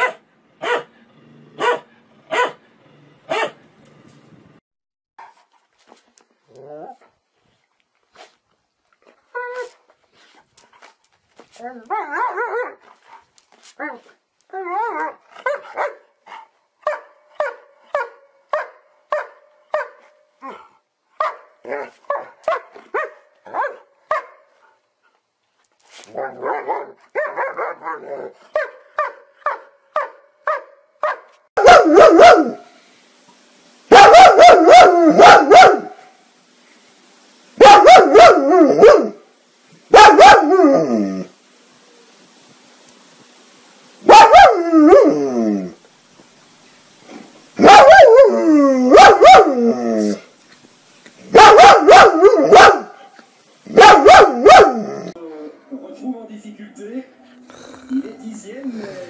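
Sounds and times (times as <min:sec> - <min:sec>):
dog barking: 0:00.0 - 0:01.0, 0:01.6 - 0:02.6, 0:03.3 - 0:03.6, 0:15.4 - 0:16.1, 0:16.8 - 0:20.0, 0:21.2 - 0:24.5, 0:26.2 - 0:32.7, 0:33.9 - 0:36.0, 0:37.6 - 0:39.2, 0:39.9 - 0:40.7, 0:44.0 - 0:45.1, 0:47.6 - 0:48.3, 0:48.9 - 0:49.6, 0:51.3 - 0:53.1, 0:53.7 - 0:54.9
dog howling: 0:40.0 - 0:41.3, 0:44.1 - 0:45.8, 0:47.6 - 0:50.2.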